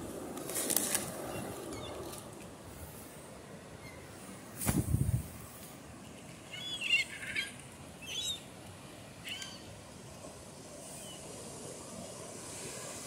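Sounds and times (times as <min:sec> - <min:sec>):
low rumble on microphone: 0:04.6 - 0:05.4
gulls calling: 0:06.4 - 0:08.5, 0:09.2 - 0:09.8
surf hissing: 0:07.9 - 0:13.0.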